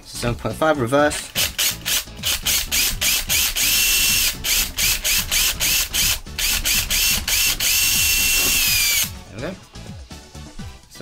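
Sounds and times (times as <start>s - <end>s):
power drill whining: 1.3s - 9.2s.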